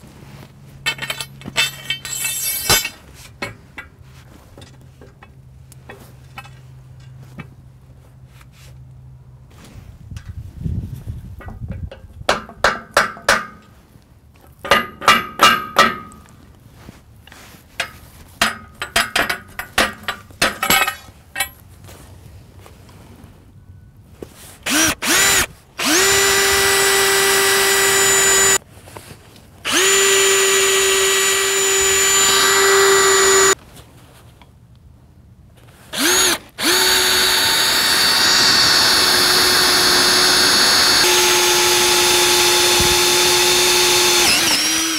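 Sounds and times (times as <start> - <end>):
sledgehammer striking steel pipe: 12.3 - 13.7, 14.7 - 16.2
cordless drill drilling into steel: 24.7 - 28.6, 29.7 - 33.6, 35.9 - 44.9.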